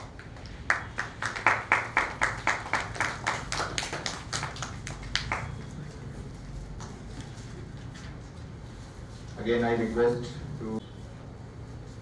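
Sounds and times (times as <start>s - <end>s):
hands clapping: 0.0s - 6.0s.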